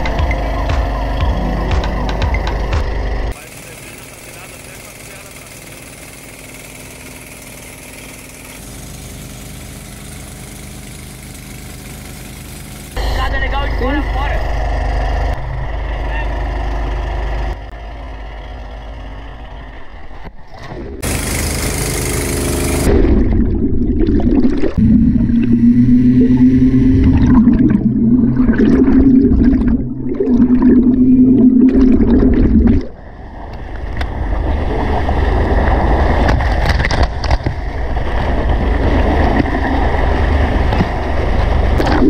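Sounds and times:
machine humming underwater: 0.0s - 42.0s
water rushing and splashing: 22.4s - 33.0s
water bubbling: 22.9s - 33.1s.

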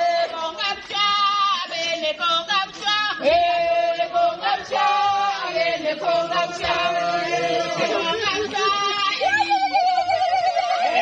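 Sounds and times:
woman singing into a microphone: 0.0s - 5.5s
group of voices singing: 0.0s - 11.0s.

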